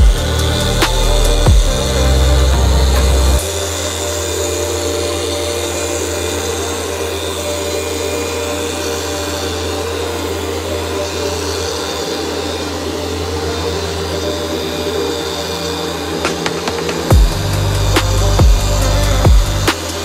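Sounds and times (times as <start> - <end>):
electric polisher running: 0.0 - 20.0.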